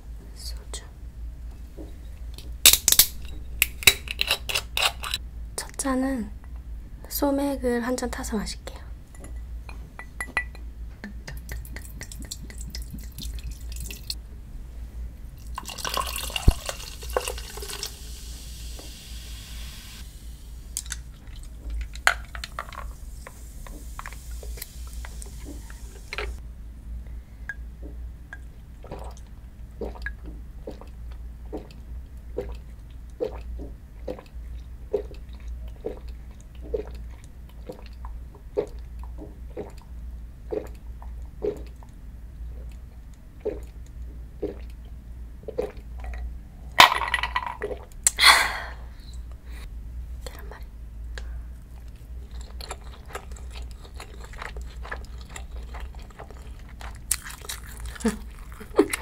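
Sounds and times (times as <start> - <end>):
swallowing gulps: 11.0 - 14.2, 28.8 - 46.3, 51.8 - 59.0
liquid pouring into a glass: 12.0 - 14.2, 15.4 - 20.0
beer pouring with a hiss: 15.4 - 20.8, 22.3 - 26.4
foam fizzing: 15.8 - 20.8.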